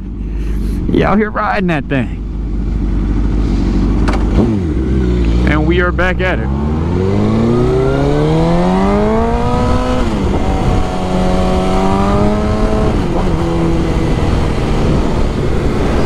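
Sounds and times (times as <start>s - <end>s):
motorcycle engine accelerating: 0.0s - 16.0s
wind rush over microphone: 7.0s - 16.0s.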